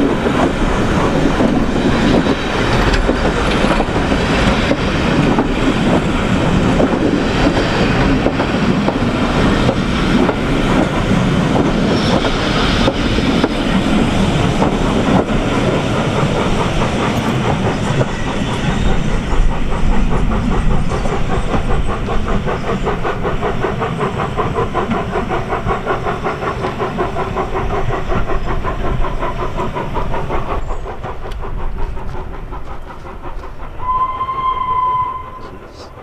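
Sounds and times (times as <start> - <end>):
train wheels clattering on track: 0.0 - 36.0
steam whistle: 33.8 - 35.5.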